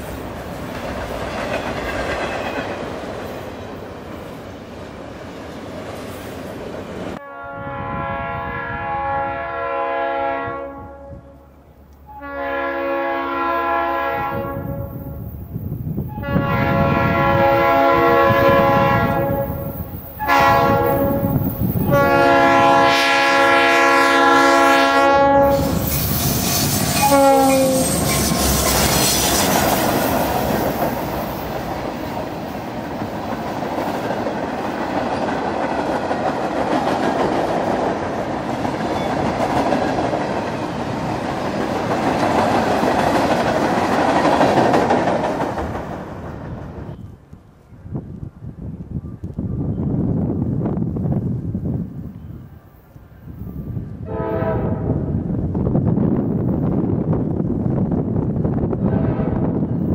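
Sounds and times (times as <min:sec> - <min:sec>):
freight cars clickety-clack: 0:00.0 - 0:03.4, 0:28.0 - 0:47.0
train horn blasts: 0:07.2 - 0:15.2, 0:16.1 - 0:25.9, 0:26.6 - 0:29.5, 0:54.0 - 0:55.2, 0:58.8 - 0:59.8.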